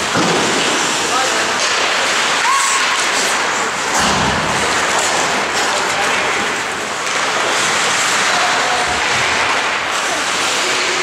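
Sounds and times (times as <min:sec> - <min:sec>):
skate blades on ice: 0:00.0 - 0:11.0
thud: 0:00.1 - 0:00.8, 0:03.9 - 0:05.3.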